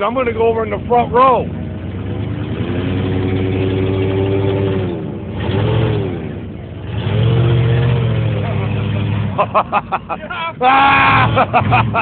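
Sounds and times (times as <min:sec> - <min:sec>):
pickup truck engine revving: 0:00.0 - 0:12.0.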